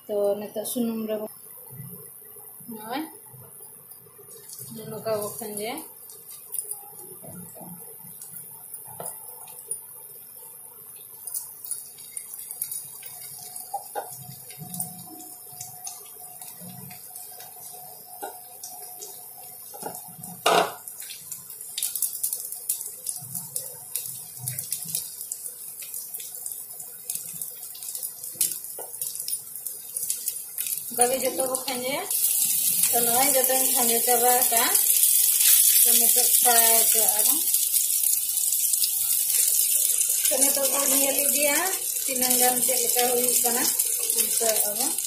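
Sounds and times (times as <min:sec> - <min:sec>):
batter sizzling in hot oil: 0:00.1 - 0:45.0.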